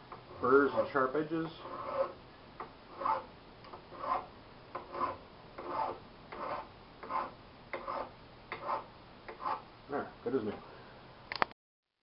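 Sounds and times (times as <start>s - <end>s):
hand file on steel: 1.6s - 2.2s, 2.9s - 9.6s.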